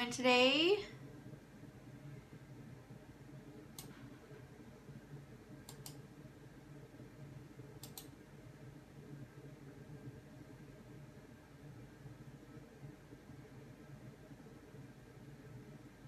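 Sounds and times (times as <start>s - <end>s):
faint sharp clicks: 5.7s - 6.0s, 7.8s - 8.1s.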